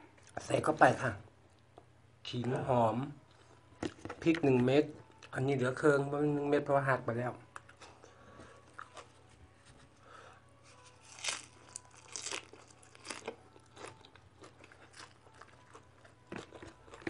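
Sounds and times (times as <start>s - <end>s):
close chewing with crunches: 8.6s - 9.3s, 10.8s - 17.0s.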